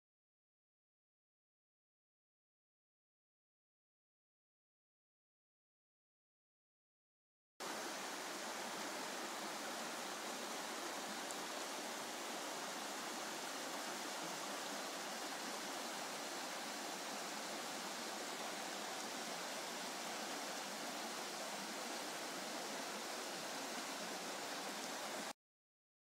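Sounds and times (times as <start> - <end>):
river rushing over rocks: 7.6 - 25.3.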